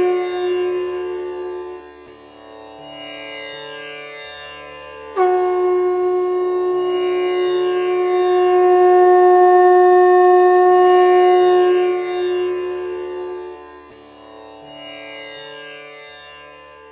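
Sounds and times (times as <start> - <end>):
conch shell blown: 0.0 - 2.1, 5.1 - 14.0.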